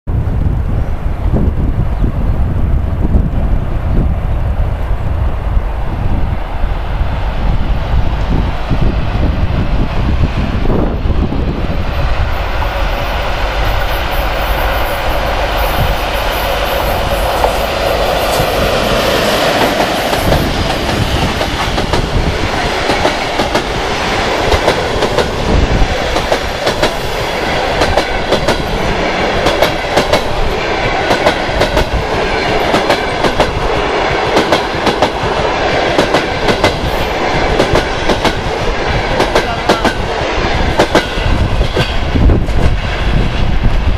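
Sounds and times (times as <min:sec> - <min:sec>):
electric locomotive rumbling past: 0:00.1 - 0:43.9
train wheels clacking over rail joints: 0:27.7 - 0:30.4, 0:40.7 - 0:42.8.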